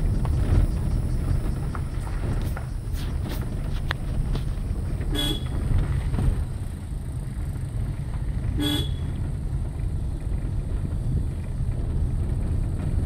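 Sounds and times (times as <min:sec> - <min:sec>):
steady low rumble: 0:00.0 - 0:13.0
vehicle horn toots: 0:05.0 - 0:05.6, 0:08.5 - 0:09.2.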